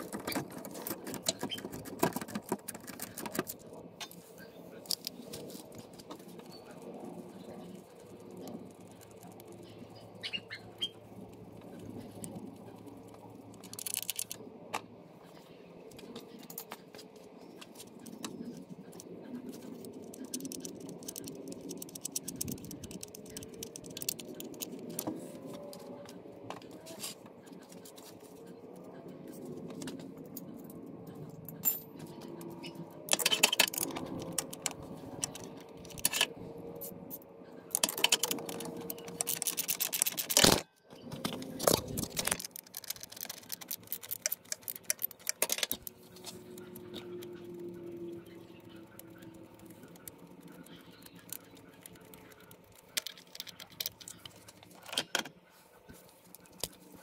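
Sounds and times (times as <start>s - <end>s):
rapid clicking: 17.7s - 25.1s, 37.7s - 40.7s, 41.3s - 54.9s
metal tools clinking and scraping: 31.5s - 32.2s, 33.1s - 43.2s.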